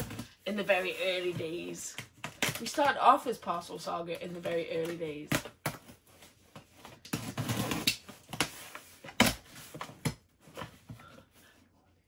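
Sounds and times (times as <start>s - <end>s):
box cutter scraping tape: 7.1s - 8.4s.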